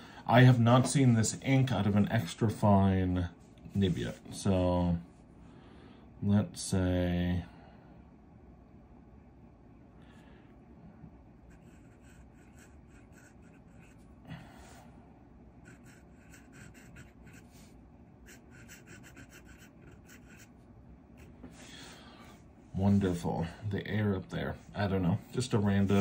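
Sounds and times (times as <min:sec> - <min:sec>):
pen nib scratching on paper: 0:11.5 - 0:14.0, 0:15.6 - 0:17.6, 0:18.2 - 0:20.5.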